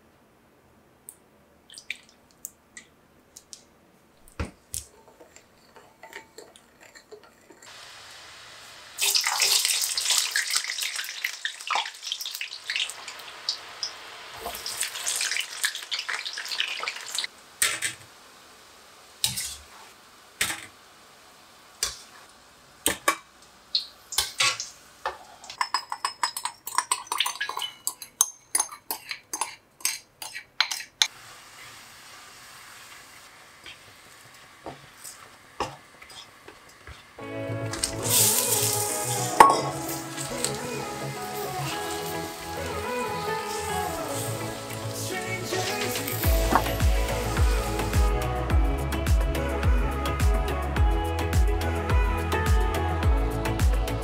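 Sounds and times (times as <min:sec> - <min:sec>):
oil sizzling and crackling: 0:03.4 - 0:50.2
glaze bubbling in frying pan: 0:05.2 - 0:44.8
spoon clinking in glass bowl: 0:25.6 - 0:31.0.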